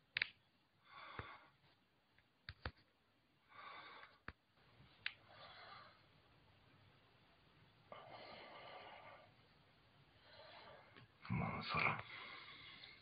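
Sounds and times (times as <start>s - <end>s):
faint breaths: 0.8s - 1.8s, 3.4s - 6.3s, 7.9s - 13.0s.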